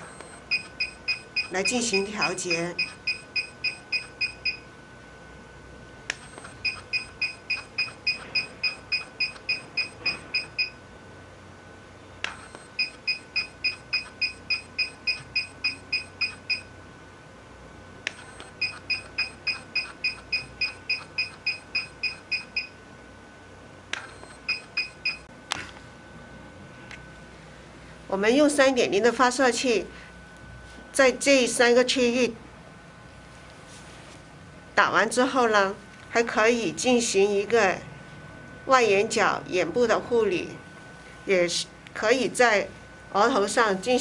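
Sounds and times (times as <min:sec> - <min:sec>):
machine beeping: 0:00.0 - 0:04.7, 0:06.1 - 0:10.8, 0:12.2 - 0:16.7, 0:18.1 - 0:22.8, 0:23.9 - 0:25.3.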